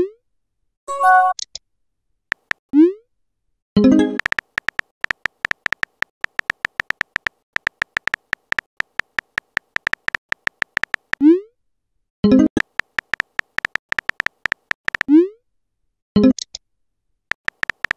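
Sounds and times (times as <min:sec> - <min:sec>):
electronic typing ticks: 0:02.3 - 0:02.6, 0:03.8 - 0:11.2, 0:12.3 - 0:15.1, 0:17.3 - 0:17.9.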